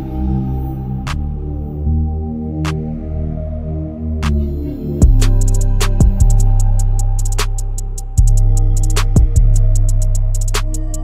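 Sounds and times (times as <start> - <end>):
heavy bass line: 0.0 - 11.0
fast hi-hat ticks: 5.0 - 11.0.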